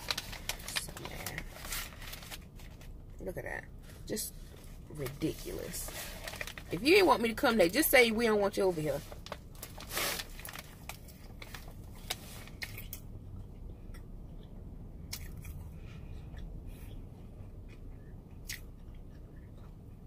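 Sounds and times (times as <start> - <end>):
low steady hum: 0.0 - 20.0
chewing food: 12.6 - 20.0.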